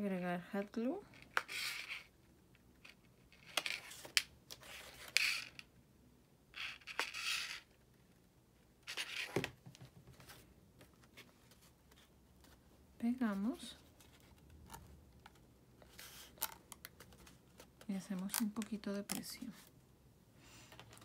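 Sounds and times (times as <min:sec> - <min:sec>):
cardstock rustling and scraping: 0:13.8 - 0:18.5.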